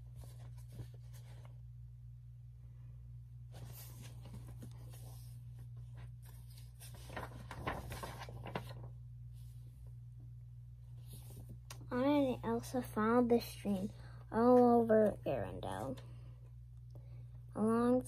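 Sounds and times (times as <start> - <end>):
paper page rustling: 0.0 - 1.6, 3.5 - 9.6, 11.0 - 11.6
low steady hum: 0.0 - 18.0.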